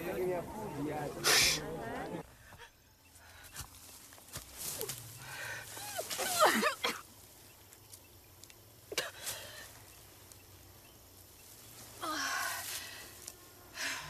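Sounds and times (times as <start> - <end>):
woman groaning in pain: 12.0 - 12.5.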